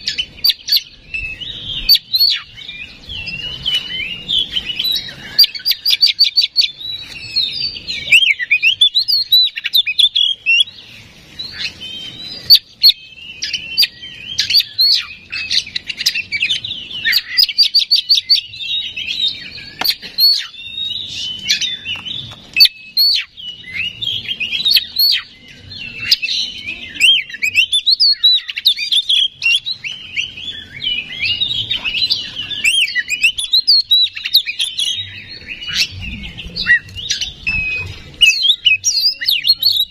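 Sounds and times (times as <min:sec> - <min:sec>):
songbird singing: 0:00.0 - 0:39.9.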